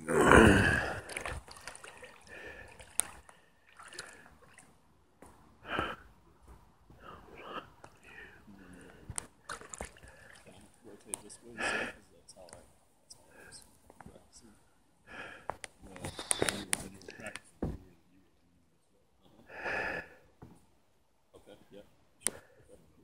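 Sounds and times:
loud vocal exclamation: 0.0 - 1.0
water sloshing around kayak: 0.8 - 4.8, 9.4 - 10.7.

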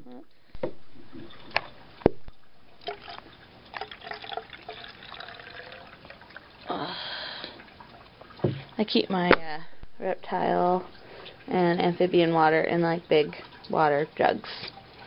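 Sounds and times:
water pouring into spray bottle: 2.8 - 6.1
handling knocks: 8.4 - 9.6.

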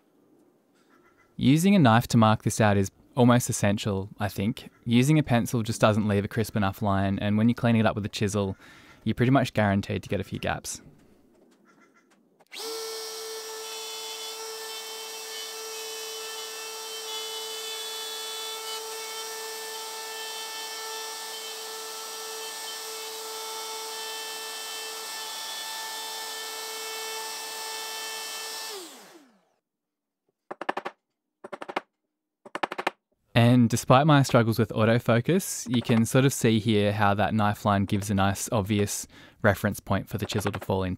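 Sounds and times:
router whining: 12.5 - 29.6.

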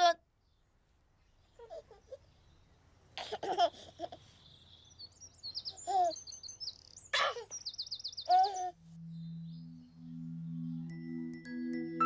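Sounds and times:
baby giggling and cooing: 1.6 - 2.2, 3.2 - 4.2, 8.3 - 8.8
songbirds chirping and trilling: 4.2 - 12.0.

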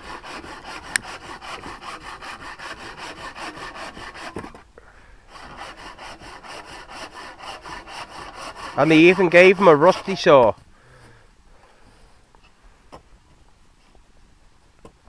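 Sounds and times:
hand saw cutting wood: 0.0 - 4.7, 5.3 - 10.6.

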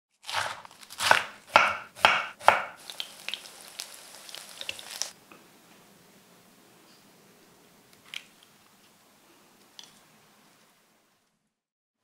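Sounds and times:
knife chopping on wooden board: 0.2 - 2.8
chicken sizzling in hot oil: 2.4 - 5.2.

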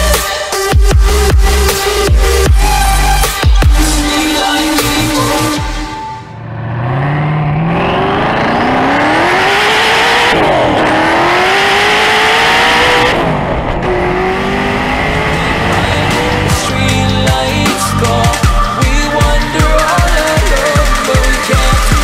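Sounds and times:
car engine accelerating: 6.3 - 22.0
gear upshifts: 6.4 - 22.0.

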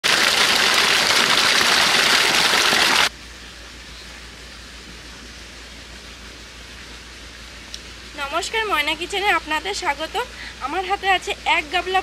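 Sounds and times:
water gushing from pipe: 0.0 - 3.1.

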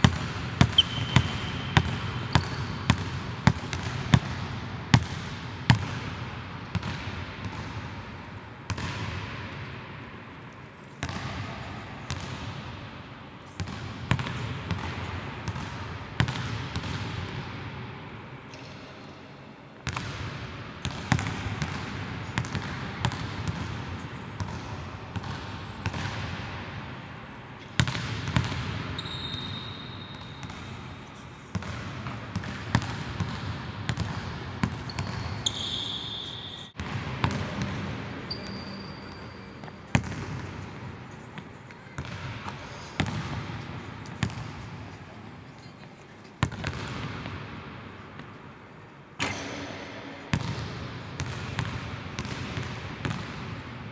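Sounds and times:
basketball bouncing with echo: 0.0 - 10.2, 11.0 - 17.9, 19.8 - 45.0, 46.4 - 48.4, 49.2 - 53.9
sneakers squeaking on floor: 0.6 - 3.0, 28.9 - 30.8, 33.9 - 37.6, 38.2 - 40.3.

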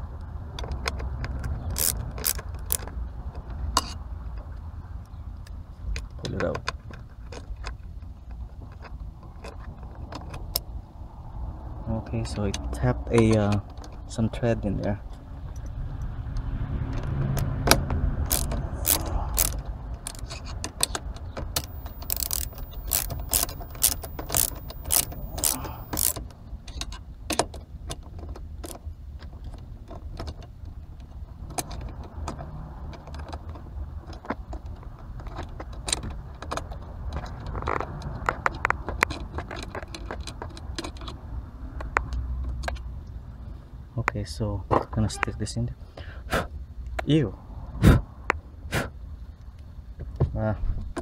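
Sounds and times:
screwdriver clicking on metal: 1.8 - 2.8, 18.3 - 20.2, 21.6 - 26.2
evenly spaced clicks: 21.6 - 26.2.

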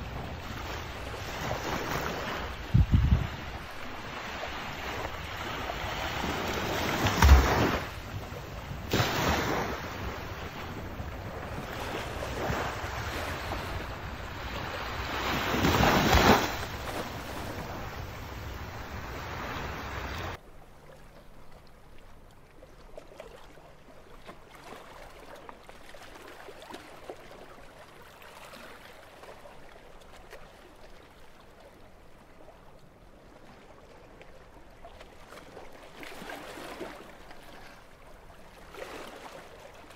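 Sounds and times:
wind noise on microphone: 0.0 - 3.7
small waves washing on beach: 0.0 - 20.4.

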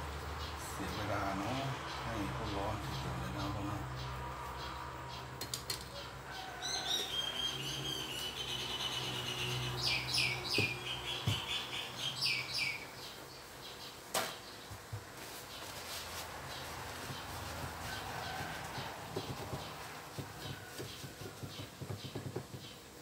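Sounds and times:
bird chirping and whistling: 6.8 - 12.9.

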